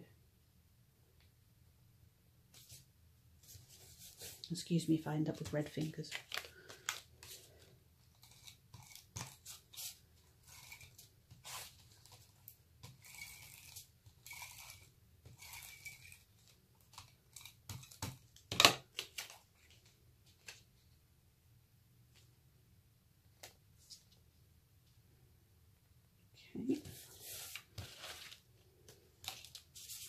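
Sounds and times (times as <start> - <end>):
paper rustling: 3.4 - 14.4, 26.8 - 30.0.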